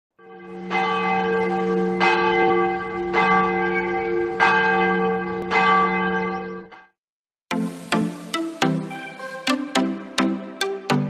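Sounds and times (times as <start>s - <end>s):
large bell tolling: 0.2s - 6.7s.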